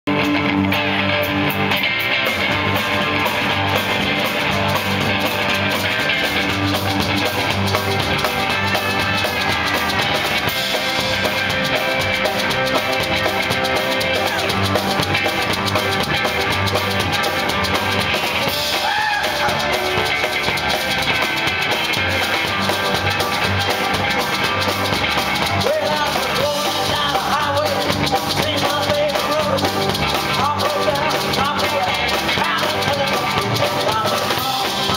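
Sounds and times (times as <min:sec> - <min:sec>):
rock band playing: 0:00.1 - 0:34.9
person singing: 0:25.4 - 0:34.9.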